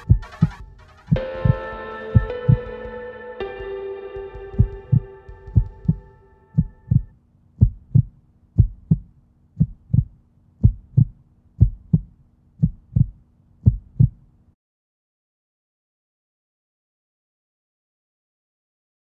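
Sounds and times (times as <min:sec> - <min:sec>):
heartbeat double thump: 0:00.0 - 0:03.0, 0:04.3 - 0:14.2
held musical chord: 0:00.0 - 0:07.0.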